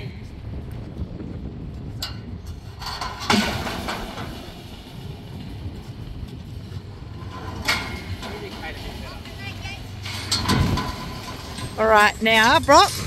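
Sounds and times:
low steady rumble: 0.0 - 13.0
metal gear clanking: 7.1 - 13.0.

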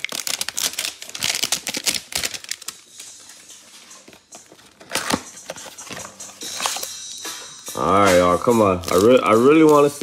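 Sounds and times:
cards rustling: 0.0 - 7.0, 7.9 - 10.0.

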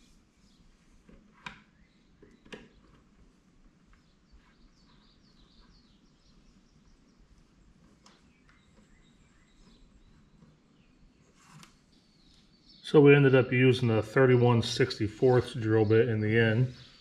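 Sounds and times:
faint bird chirps: 3.9 - 13.9, 15.2 - 17.0.

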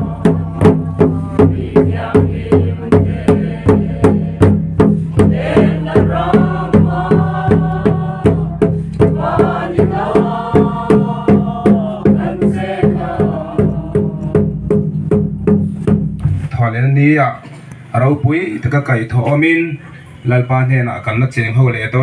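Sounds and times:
group of people singing: 0.0 - 14.9
large drum beating: 0.0 - 16.6.

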